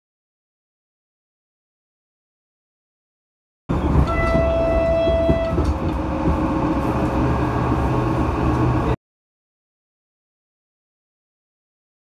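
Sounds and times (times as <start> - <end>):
moving train rumbling and rattling: 3.7 - 9.0
train horn: 3.8 - 5.8.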